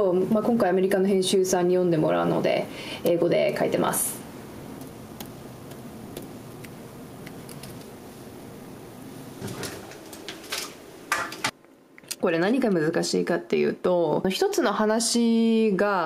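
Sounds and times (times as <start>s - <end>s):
room noise: 0.0s - 13.6s
stylus tapping and scratching screen: 4.8s - 7.8s.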